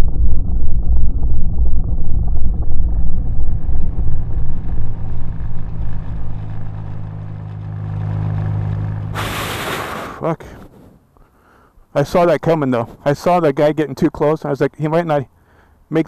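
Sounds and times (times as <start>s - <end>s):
motorcycle engine rumbling: 0.0s - 10.4s.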